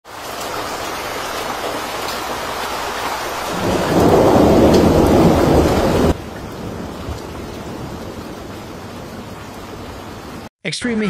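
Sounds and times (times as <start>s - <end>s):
floodwater rushing: 0.0s - 10.5s
rain: 0.0s - 10.5s.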